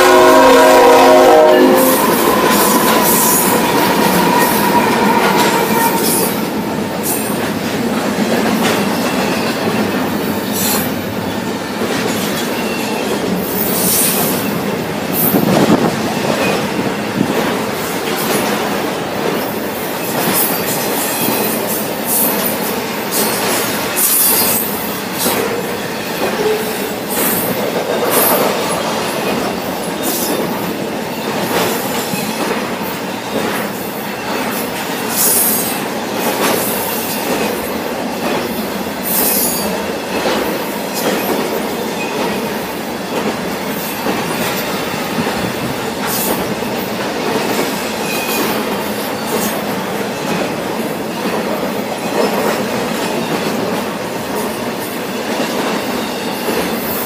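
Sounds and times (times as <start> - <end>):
freight train rumbling on rails: 0.0 - 57.0
wheel squeals: 1.6 - 6.5.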